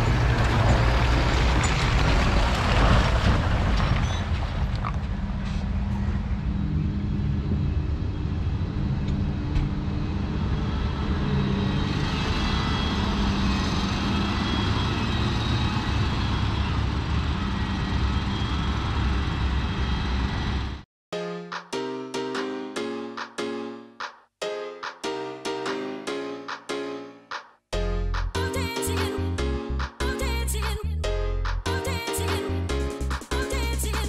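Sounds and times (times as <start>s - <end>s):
farm machinery diesel engines running: 0.0s - 4.2s, 8.6s - 20.8s
tractor passing close by: 0.0s - 7.8s.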